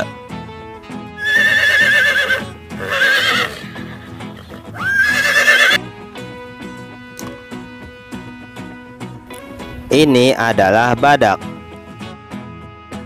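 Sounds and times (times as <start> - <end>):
background music: 0.0 - 13.0
horse whinnying: 1.2 - 5.8.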